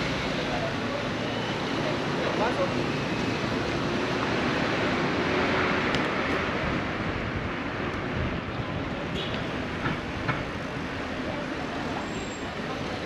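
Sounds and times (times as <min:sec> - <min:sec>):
city street traffic: 0:00.0 - 0:13.0
wind rushing over microphone: 0:05.6 - 0:11.0.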